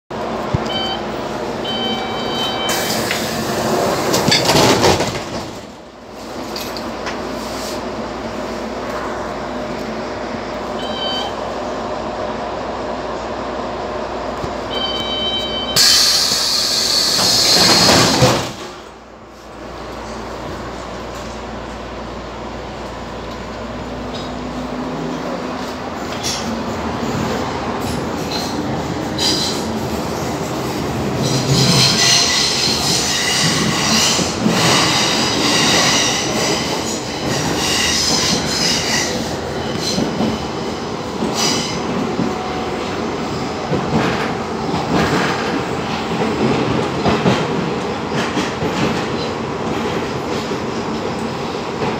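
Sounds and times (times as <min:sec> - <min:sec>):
train wheels rumbling on track: 0:00.1 - 0:51.9
high warning tone: 0:00.6 - 0:03.0, 0:10.8 - 0:11.5, 0:14.7 - 0:16.2
train doors air hiss: 0:02.7 - 0:03.9, 0:07.2 - 0:08.0, 0:15.8 - 0:18.9.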